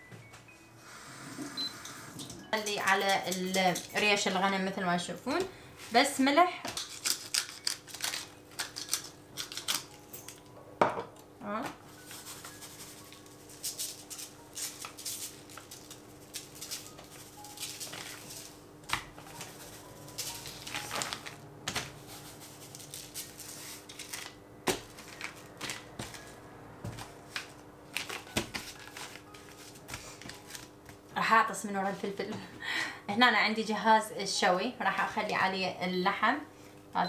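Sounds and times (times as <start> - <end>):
utensils and dishes clicking: 1.8 - 4.4, 6.7 - 10.5.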